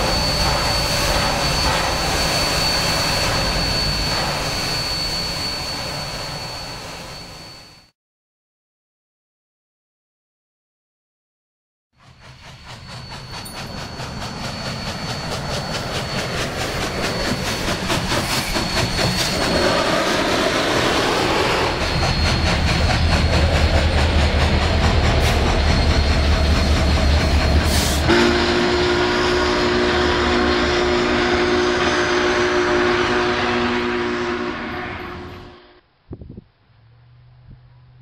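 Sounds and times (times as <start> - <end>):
steam locomotive exhaust beats: 0.0 - 7.7, 12.0 - 38.0
rumble of train wheels: 0.0 - 7.9, 12.0 - 38.0
train horn chord: 28.0 - 35.9.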